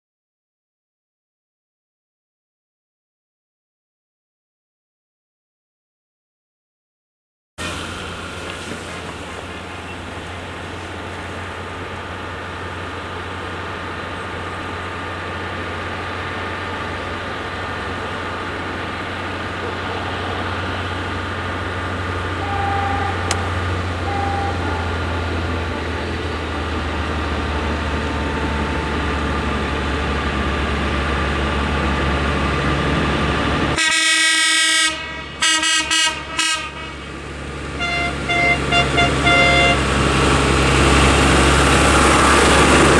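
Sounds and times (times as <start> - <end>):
tractor engines droning: 7.6 - 42.9
horn blasts: 22.3 - 25.7, 27.4 - 29.6, 33.8 - 37.1, 37.8 - 39.9.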